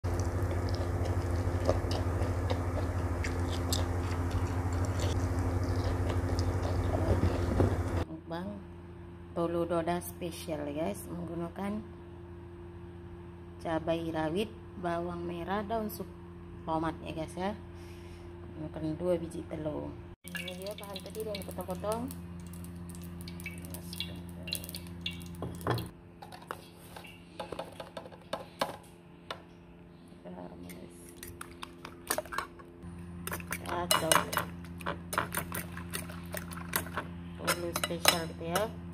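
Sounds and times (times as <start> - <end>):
wet chewing and crunching: 0.0 - 8.0, 20.3 - 25.9, 31.0 - 32.6, 33.2 - 33.8, 34.5 - 37.0
steady low hum: 0.0 - 38.9.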